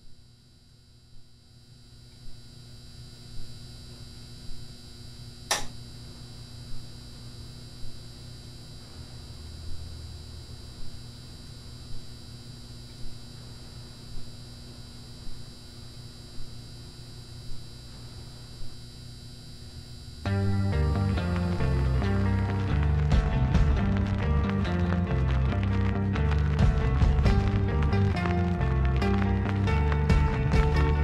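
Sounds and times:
low hum and drone: 0:00.0 - 0:31.0
sharp click: 0:05.5 - 0:05.8
soft beat: 0:10.8 - 0:11.1, 0:11.8 - 0:12.2, 0:13.0 - 0:14.4, 0:16.3 - 0:16.6, 0:20.3 - 0:31.0.

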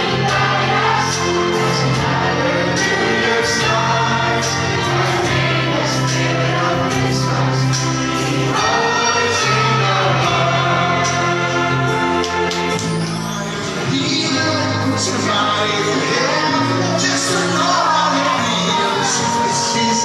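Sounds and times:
karaoke backing track: 0:00.0 - 0:20.0
person singing into a microphone: 0:13.8 - 0:20.0.

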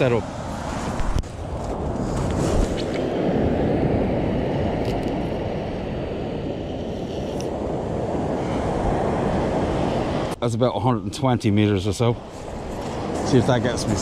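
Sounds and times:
wind buffeting microphone: 0:00.0 - 0:10.4, 0:11.4 - 0:14.0
breaking surf: 0:12.2 - 0:14.0.

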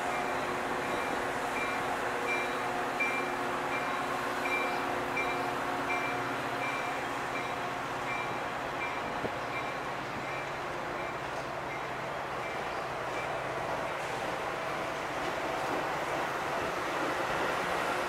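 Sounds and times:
crossing warning bell dinging: 0:00.0 - 0:14.1
train wheels rushing on rail: 0:00.0 - 0:18.0.

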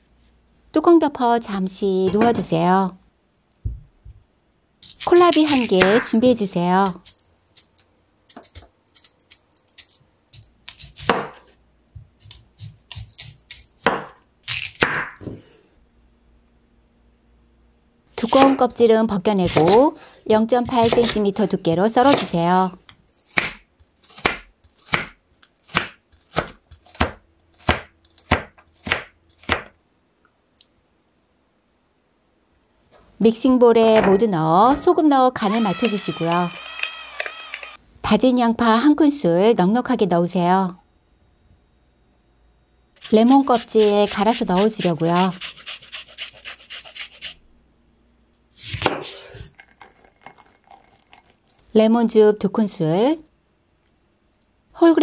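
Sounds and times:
thump: 0:03.6 - 0:04.2
rind rasped on metal grater: 0:43.0 - 0:47.4.

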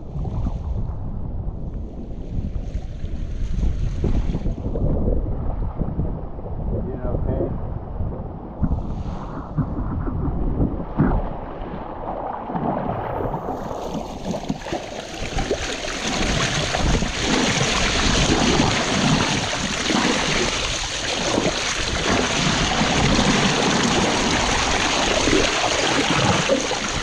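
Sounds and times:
wind buffeting microphone: 0:00.0 - 0:27.0
water rushing along hull: 0:08.3 - 0:27.0.

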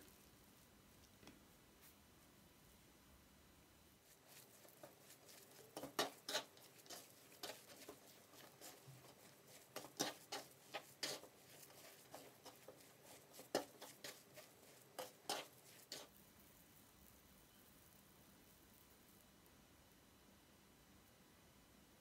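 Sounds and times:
hands kneading crumbly curd: 0:03.9 - 0:17.2.

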